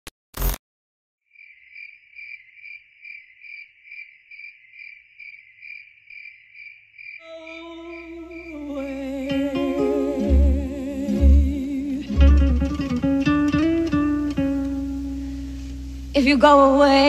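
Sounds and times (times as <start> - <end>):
cricket chirping: 1.3 - 10.4
soft music: 7.3 - 17.0.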